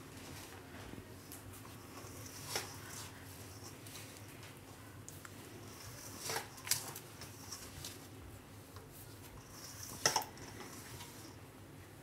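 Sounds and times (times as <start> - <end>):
scrape against metal bowl: 9.4 - 11.4.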